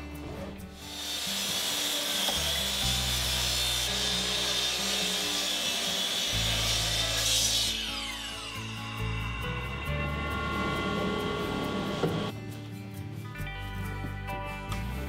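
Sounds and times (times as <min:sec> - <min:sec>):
saw cutting wood: 0:00.0 - 0:12.3
miter saw blade whining: 0:00.8 - 0:12.3.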